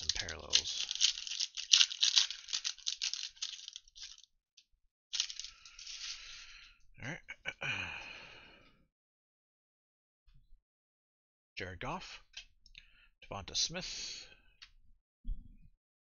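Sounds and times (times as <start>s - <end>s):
cards rustling and sliding: 0.0s - 4.2s, 5.2s - 6.3s
foil wrapper crinkling and tearing: 0.0s - 4.3s, 5.1s - 6.4s.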